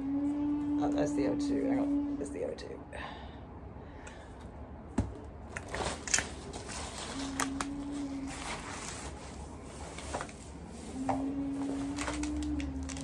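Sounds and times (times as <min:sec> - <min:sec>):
low steady hum: 0:00.0 - 0:13.0
umbrella fabric rustling: 0:05.8 - 0:13.0.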